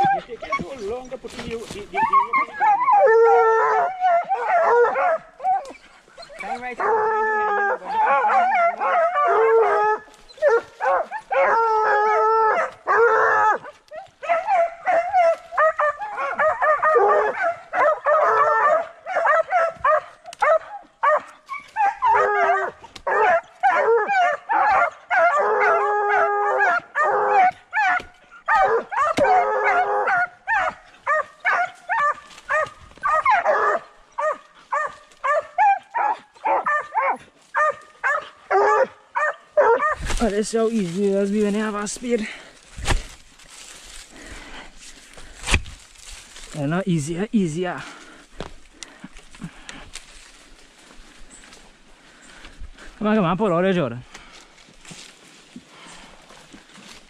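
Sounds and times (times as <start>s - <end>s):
hounds barking: 0.0s - 40.7s
hounds baying and howling: 0.0s - 53.9s.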